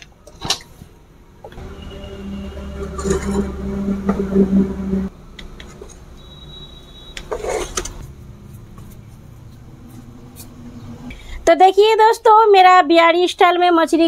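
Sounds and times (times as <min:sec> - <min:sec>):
steady low hum: 0:01.1 - 0:07.0, 0:08.0 - 0:11.5
steel ladle scraping and clinking: 0:01.8 - 0:04.4, 0:07.3 - 0:08.0.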